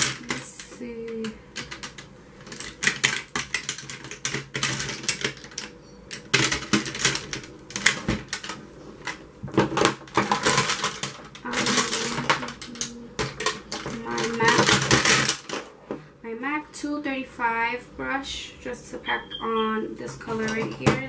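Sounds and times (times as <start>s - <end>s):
brushes and cases clattering: 0.0s - 16.0s.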